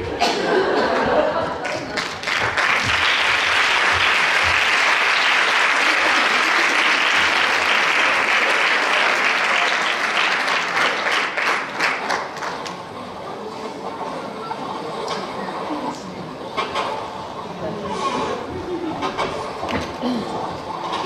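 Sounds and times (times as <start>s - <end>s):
audience applauding: 1.6s - 12.9s.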